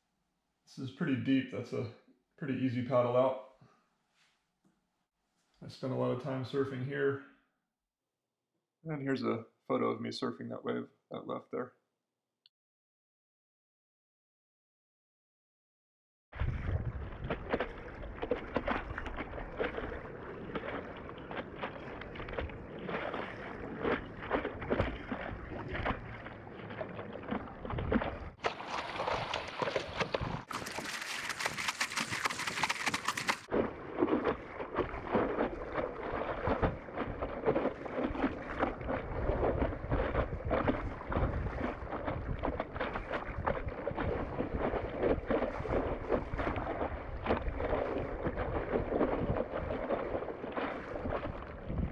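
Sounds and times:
water sloshing and splashing: 0:16.4 - 0:51.9.

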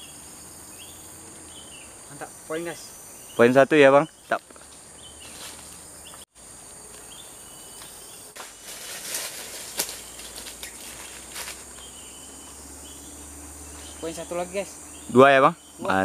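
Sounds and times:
insect chorus: 0:00.0 - 0:16.0
dry leaves rustling underfoot: 0:04.4 - 0:06.0, 0:06.8 - 0:12.6.

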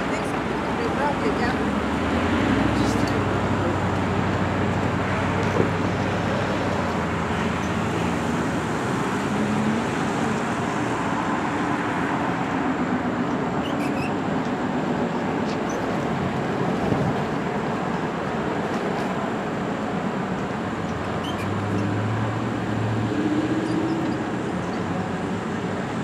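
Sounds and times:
road traffic noise: 0:00.0 - 0:26.0.

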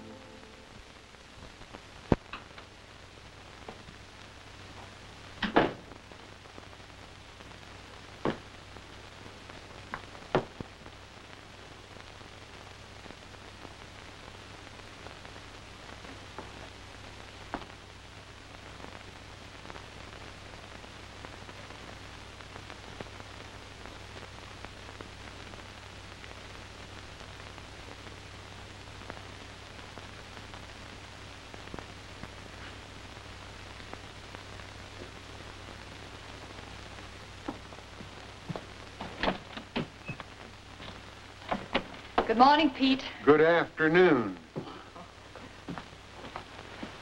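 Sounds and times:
low hum: 0:00.0 - 0:05.4
film soundtrack hiss and crackle: 0:00.0 - 0:47.0.

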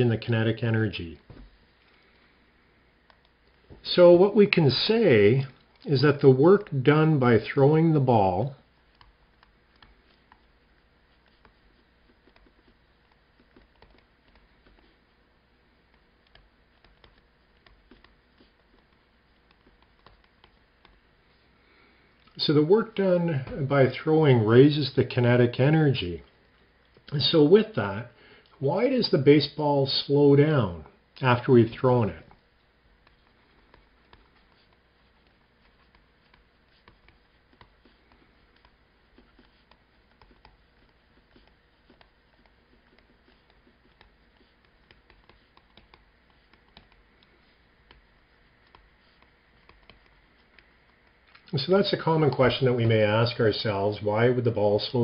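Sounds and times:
stylus tapping on tablet screen: 0:08.9 - 0:15.0, 0:15.9 - 0:21.0, 0:33.0 - 0:51.2.

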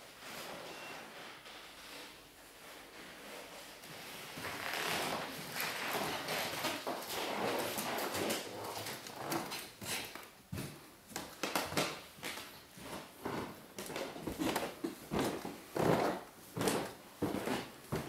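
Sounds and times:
footsteps on wooden floor: 0:04.3 - 0:18.0.

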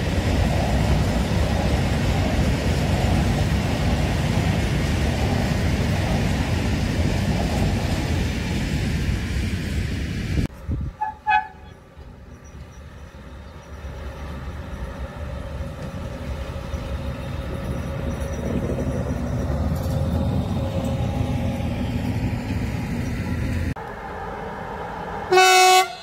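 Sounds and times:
freight train rumbling: 0:00.0 - 0:26.0
train horn toots: 0:11.0 - 0:11.8, 0:25.3 - 0:26.0.

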